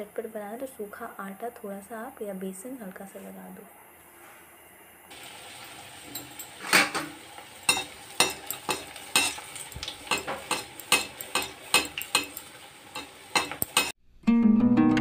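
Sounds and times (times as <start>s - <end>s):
food deep-frying in oil: 5.1s - 14.0s
metal spoon scraping a pan: 6.1s - 13.9s.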